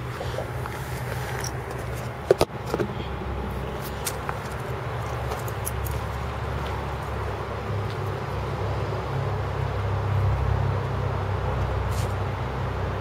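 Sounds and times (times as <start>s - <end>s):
car engine idling burble: 0.0s - 9.6s.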